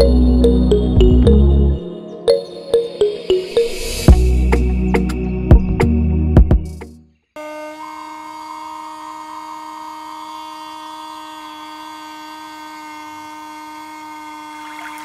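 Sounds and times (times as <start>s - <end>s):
small motor whining: 7.4s - 15.0s.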